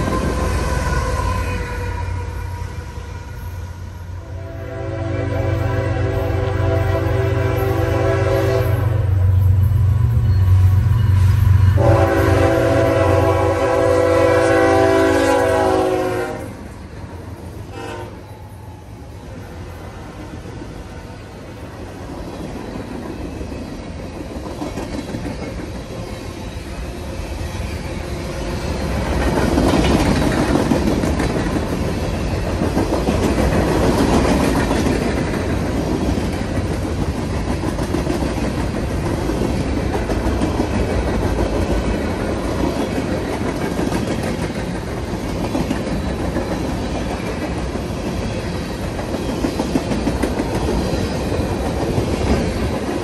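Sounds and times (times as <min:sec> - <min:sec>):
train wheels clickety-clack: 0:00.0 - 0:01.6, 0:19.7 - 0:53.0.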